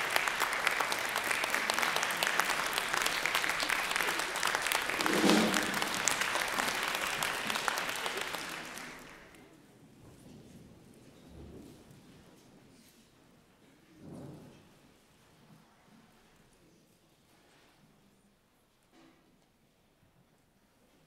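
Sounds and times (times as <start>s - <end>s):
voice from audience: 0.0s - 9.4s
audience applauding: 0.0s - 9.5s.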